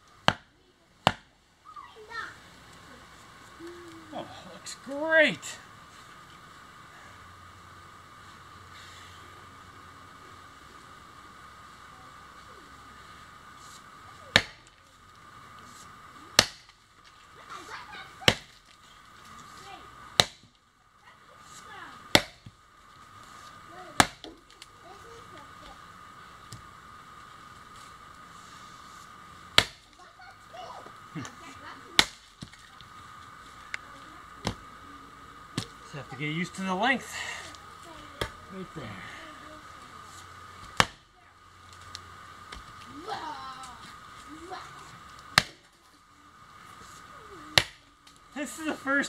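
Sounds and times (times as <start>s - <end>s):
axe chopping wood: 0.2s - 1.3s, 14.3s - 14.6s, 16.4s - 16.8s, 18.3s - 18.6s, 20.2s - 20.5s, 22.1s - 22.5s, 24.0s - 24.4s, 29.6s - 29.9s, 32.0s - 32.6s, 34.4s - 34.6s, 40.6s - 41.1s, 45.3s - 45.6s, 47.6s - 47.8s.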